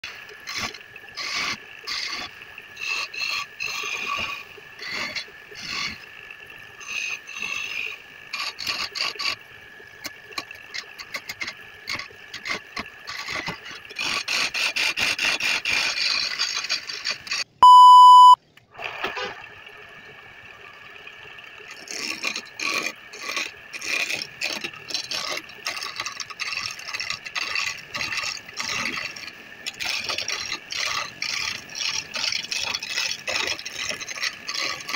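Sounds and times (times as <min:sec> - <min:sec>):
lathe tool scraping wood: 0:00.1 - 0:06.0, 0:06.8 - 0:09.4, 0:10.7 - 0:17.5, 0:21.7 - 0:34.9
electronic beep: 0:17.6 - 0:18.4.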